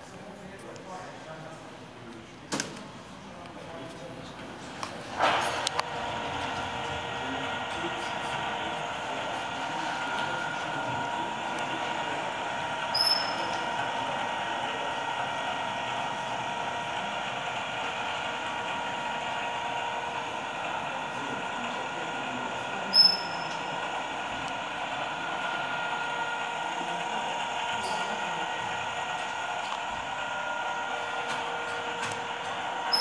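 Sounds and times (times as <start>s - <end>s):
drivetrain gears whirring: 4.6s - 33.0s
short high squeaks: 12.9s - 13.6s, 22.9s - 23.6s.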